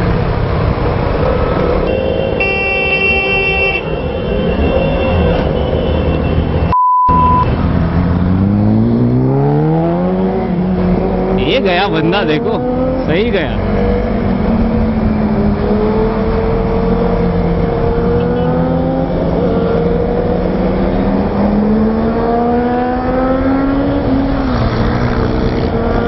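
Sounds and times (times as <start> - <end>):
motorcycle engine accelerating: 7.4 - 11.6, 12.5 - 26.0.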